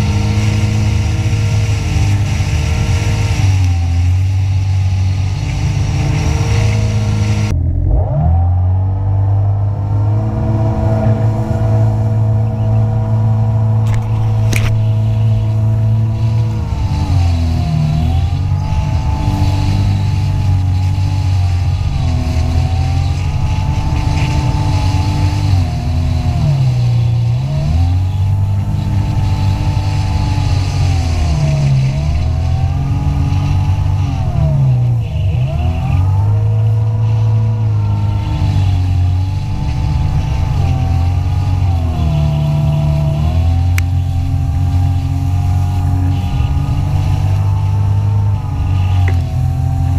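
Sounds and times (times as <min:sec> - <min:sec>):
jet ski engine running: 0:00.0 - 0:49.9.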